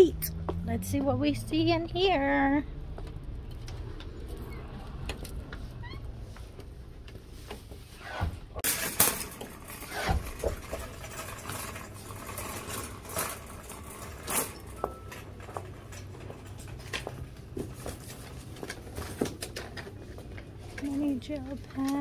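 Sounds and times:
wire shopping cart rattling: 8.6s - 22.0s.

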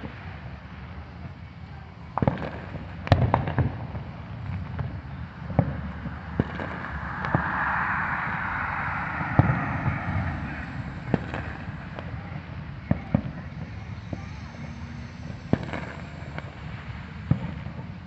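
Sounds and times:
car passing: 4.6s - 12.8s.

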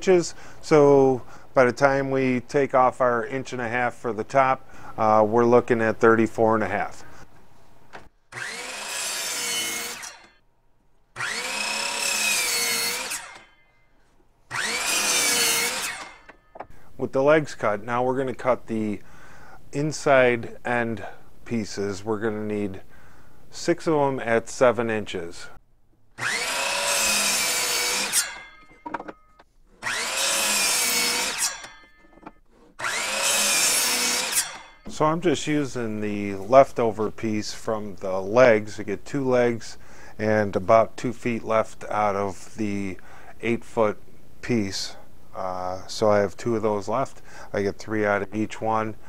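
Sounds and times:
electric miter saw cutting wood: 8.3s - 10.4s, 11.2s - 13.6s, 14.5s - 16.4s, 26.2s - 28.8s, 29.8s - 32.1s, 32.7s - 35.0s
knocks of wood on saw table: 28.2s - 29.3s.

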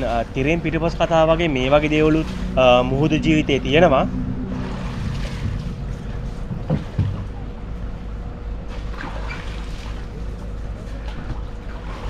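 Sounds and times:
boat engine rumbling: 0.0s - 12.0s.

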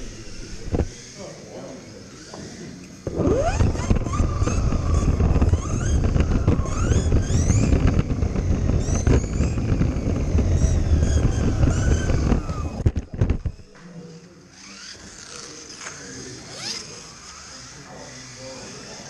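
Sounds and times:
chassis rumbling and rattling: 0.0s - 1.0s, 3.1s - 13.7s
toy car motor whining: 0.0s - 19.0s.

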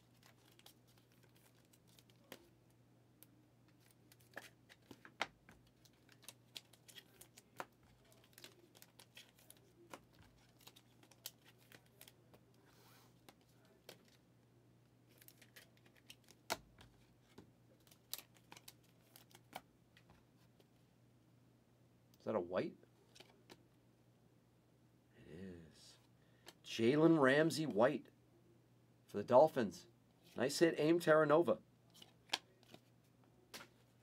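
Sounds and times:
trading cards clicking and rustling: 0.0s - 2.5s, 3.7s - 12.4s, 15.1s - 20.1s
faint low hum: 0.0s - 34.0s.

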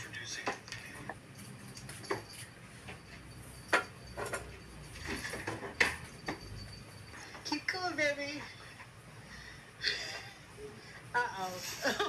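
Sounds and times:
low steady background noise: 0.0s - 12.0s
knocks and clatters: 0.5s - 7.4s.

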